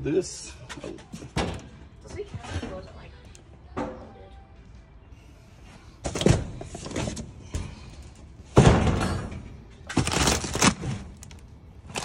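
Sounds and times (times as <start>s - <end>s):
boxes thumping: 9.9s - 11.3s.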